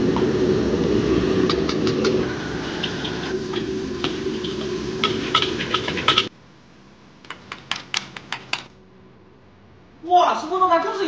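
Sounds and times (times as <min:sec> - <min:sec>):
wok burner and frying noise: 0:00.0 - 0:06.4.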